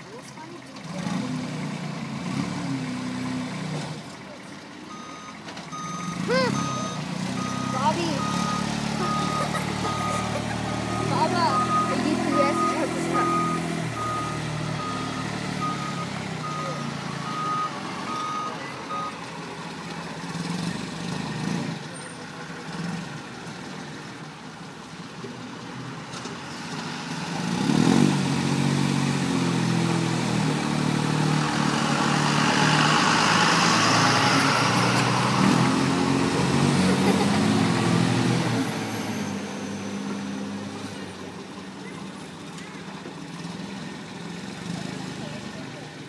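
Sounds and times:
truck diesel engine running: 0:00.0 - 0:46.0
reversing alarm beeping: 0:04.9 - 0:19.2.

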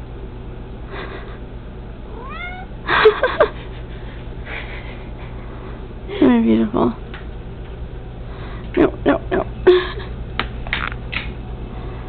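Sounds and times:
cat meowing: 0:02.1 - 0:02.7.

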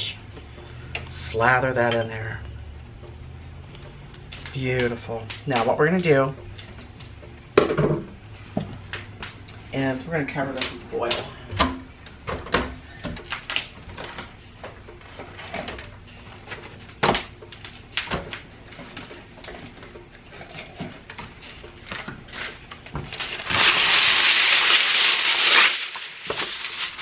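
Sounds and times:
aluminium foil crackling rustle: 0:13.2 - 0:27.0.

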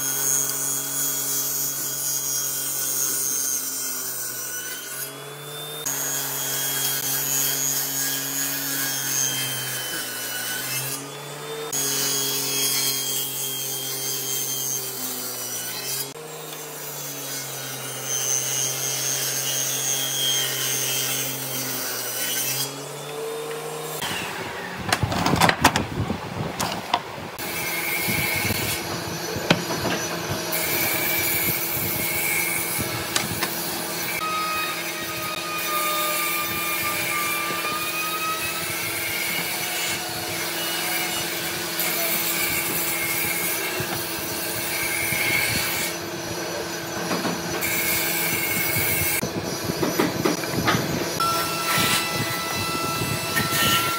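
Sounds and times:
table saw cutting wood: 0:00.0 - 0:53.9
wooden knocks and clatter: 0:24.9 - 0:25.9.

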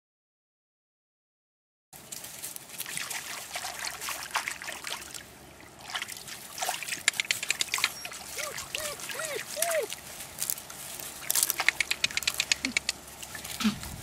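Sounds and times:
shallow water trickling: 0:02.1 - 0:11.5
puppies splashing in water: 0:02.5 - 0:14.0.

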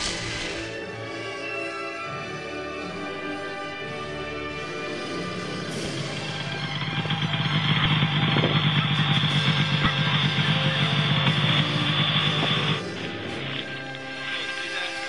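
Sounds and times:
snowmobile engines running: 0:00.0 - 0:00.8, 0:04.3 - 0:15.0
background music: 0:00.0 - 0:15.0.

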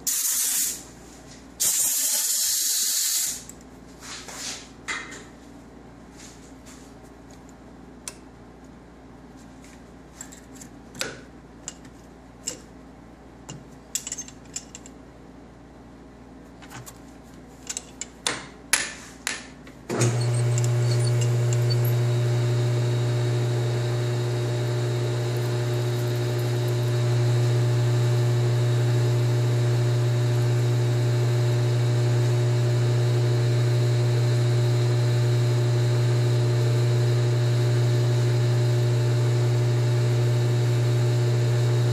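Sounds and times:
lathe motor humming: 0:19.9 - 0:41.9.

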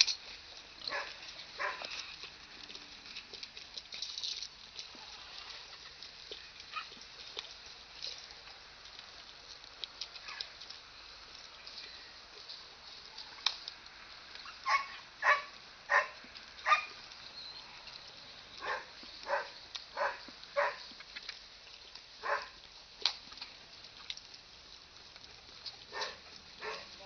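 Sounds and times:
dog barking: 0:00.9 - 0:01.9, 0:14.6 - 0:16.9, 0:18.6 - 0:20.9, 0:22.2 - 0:22.6, 0:25.9 - 0:26.9.

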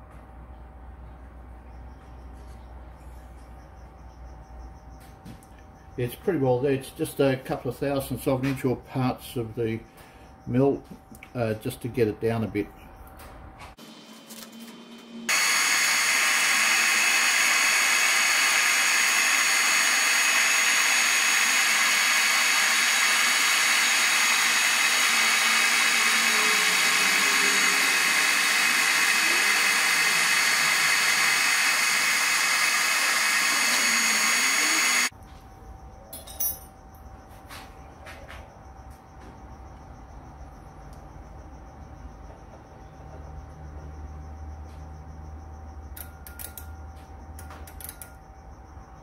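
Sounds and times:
metal lathe whining: 0:15.3 - 0:35.1.

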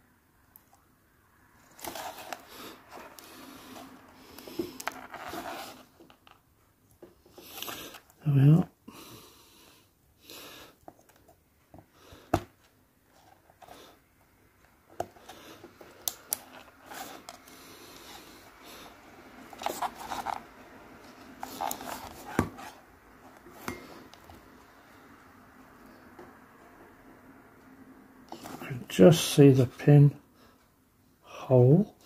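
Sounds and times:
plastic and wire clicks and rustles: 0:01.6 - 0:08.2, 0:14.9 - 0:18.2, 0:19.4 - 0:24.4.

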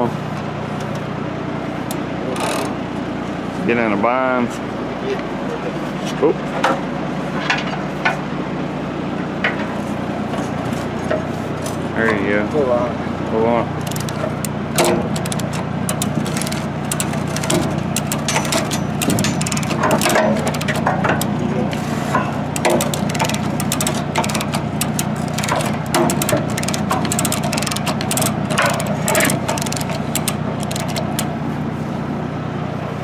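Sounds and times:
low engine hum: 0:00.0 - 0:33.0
chain hoist ratcheting: 0:02.3 - 0:02.8, 0:13.8 - 0:31.3
clinking load chain: 0:14.8 - 0:21.3, 0:22.6 - 0:31.2.

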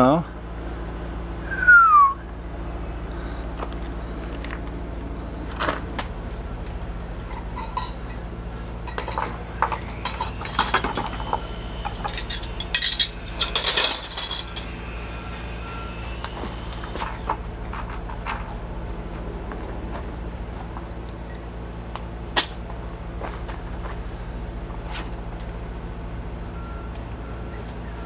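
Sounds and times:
steady low hum: 0:00.0 - 0:28.0
metal tools clinking: 0:07.2 - 0:14.8, 0:16.9 - 0:21.6, 0:22.4 - 0:22.6.

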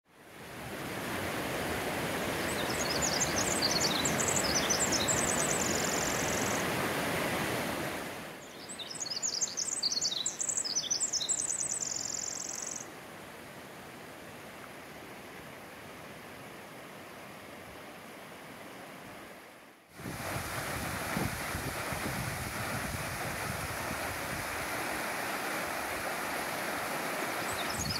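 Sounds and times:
rushing water: 0:00.1 - 0:27.9
steady outdoor hiss: 0:00.1 - 0:27.9
songbird chirping and trilling: 0:02.4 - 0:06.6, 0:08.4 - 0:12.9, 0:27.5 - 0:27.9.

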